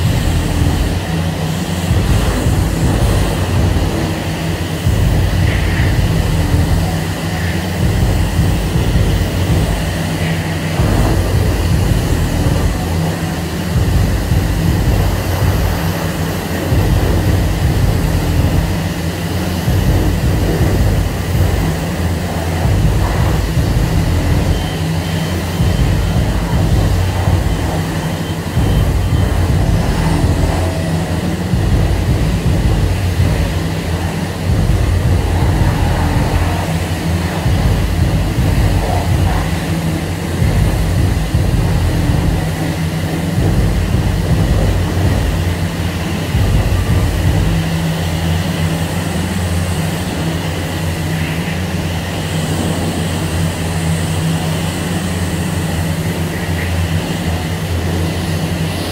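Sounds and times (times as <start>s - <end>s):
low rumble: 0.0s - 7.0s, 10.7s - 45.6s
pressure washer spraying water: 0.0s - 58.9s.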